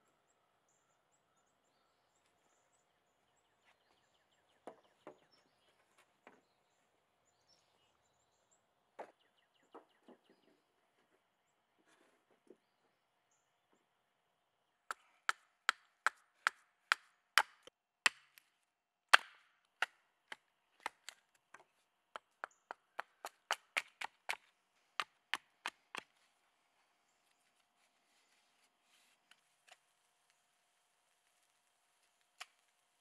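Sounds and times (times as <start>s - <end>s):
hatchet chopping wood: 14.9s - 18.4s, 19.1s - 26.1s.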